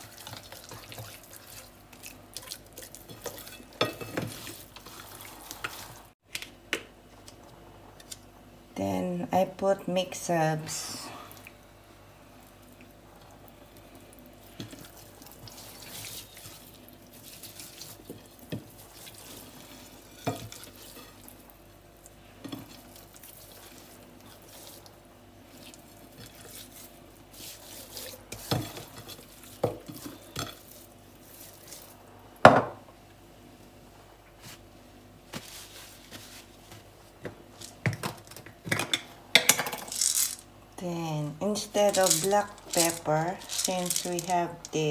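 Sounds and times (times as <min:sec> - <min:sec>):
faint steady hum: 0:00.0 - 0:44.9
faint rustling and handling: 0:34.3 - 0:37.8, 0:41.6 - 0:44.9.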